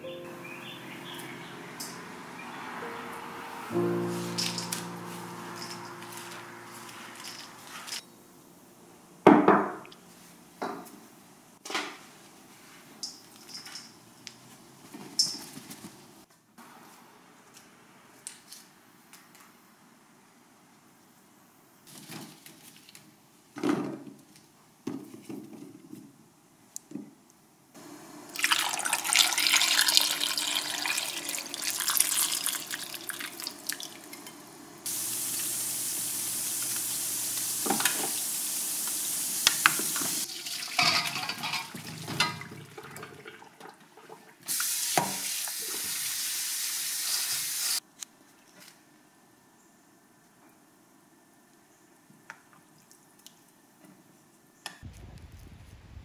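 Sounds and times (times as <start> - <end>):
tap water splashing into pot: 28.4 - 34.2, 36.6 - 38.2, 38.8 - 45.8
pot lid clinking: 40.7 - 42.5.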